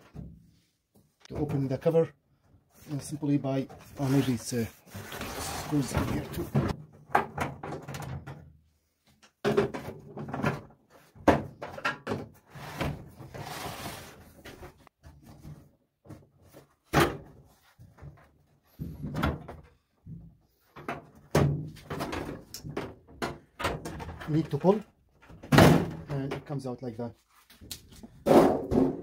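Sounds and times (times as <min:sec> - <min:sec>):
sheet-metal cover knocking and clunking: 0:06.1 - 0:08.5, 0:09.4 - 0:12.4, 0:16.9 - 0:26.3, 0:28.2 - 0:29.0.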